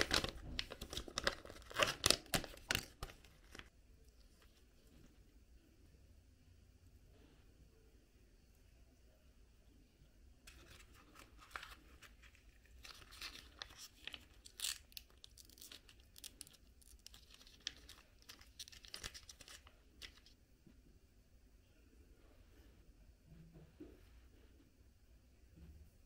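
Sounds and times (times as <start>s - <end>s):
plastic tube crinkling and clicking: 0.0s - 3.7s.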